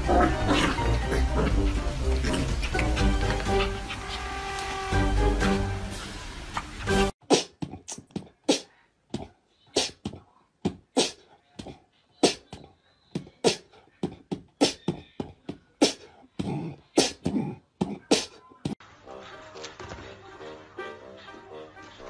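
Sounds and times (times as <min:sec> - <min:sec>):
puppies barking and yapping: 0:00.0 - 0:05.8.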